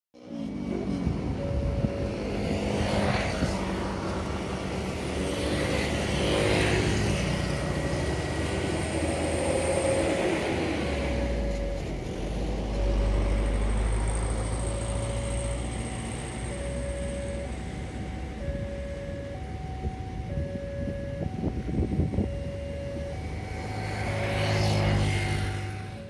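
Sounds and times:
short beeps: 0:00.2 - 0:02.4
deep engine rumble: 0:00.2 - 0:05.2, 0:07.6 - 0:26.0
road traffic passing: 0:00.2 - 0:26.0.

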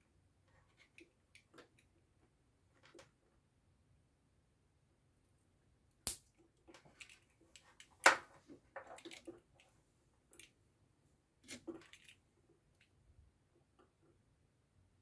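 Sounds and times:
plastic parts clicking: 0:06.7 - 0:09.6.

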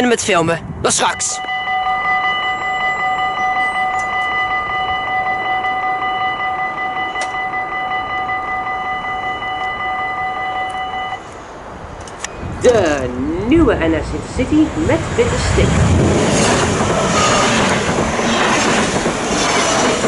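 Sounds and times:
level crossing warning bell: 0:01.0 - 0:11.4.

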